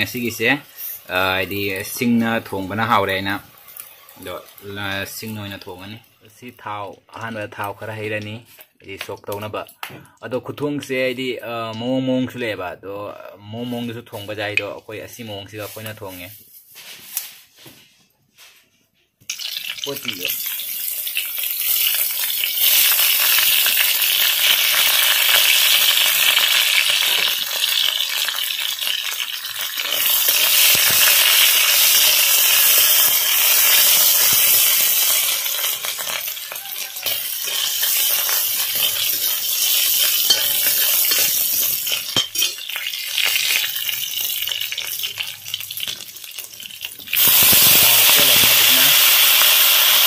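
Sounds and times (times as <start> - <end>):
food sizzling in hot oil: 0.0 - 6.3, 19.3 - 50.0
spatula scraping wok: 29.8 - 46.6.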